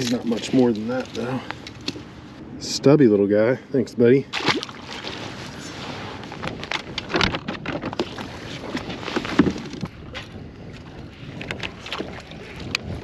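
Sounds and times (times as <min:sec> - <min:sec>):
wind on microphone: 0:05.2 - 0:13.0.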